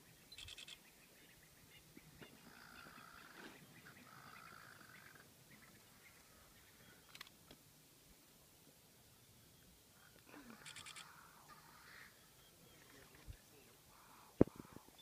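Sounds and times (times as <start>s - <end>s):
drawn-out animal calls: 2.3s - 6.7s.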